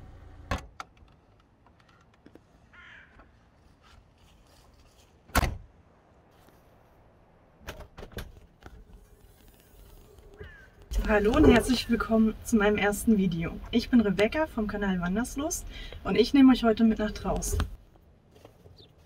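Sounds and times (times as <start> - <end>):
crow cawing: 2.7 - 3.2, 10.4 - 10.8.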